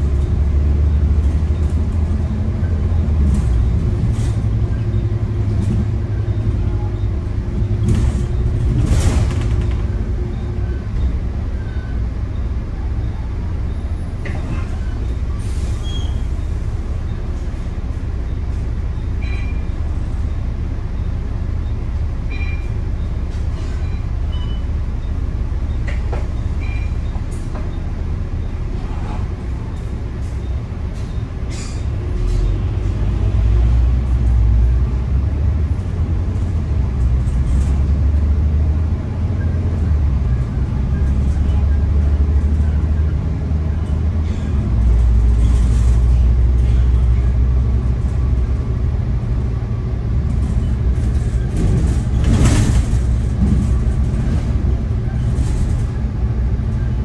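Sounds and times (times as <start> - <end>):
bus engine and road drone: 0.0 - 57.0
high squeaks and clunks: 25.7 - 27.9.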